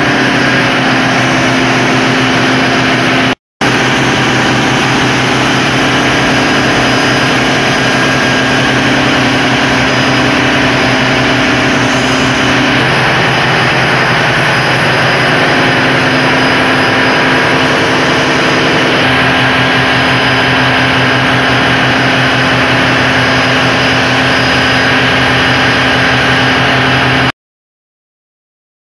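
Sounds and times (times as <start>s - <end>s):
marine diesel engine droning: 0.0s - 27.3s.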